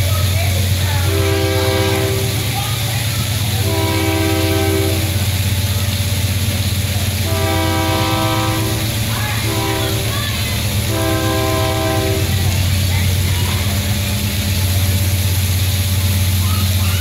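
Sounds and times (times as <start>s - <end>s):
low rumble of passing train: 0.0s - 17.0s
locomotive air horn blasts: 0.9s - 2.8s, 3.4s - 5.4s, 7.2s - 13.0s.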